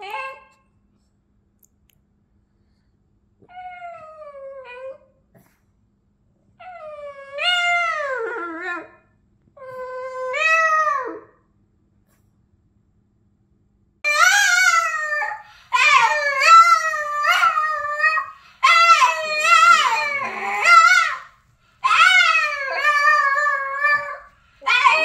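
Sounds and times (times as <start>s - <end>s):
dog howling: 14.1s - 25.0s.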